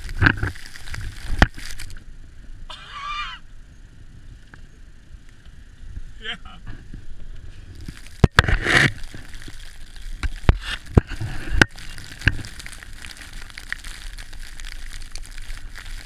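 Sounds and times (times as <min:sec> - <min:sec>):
wind and snow hissing: 0:00.0 - 0:16.0.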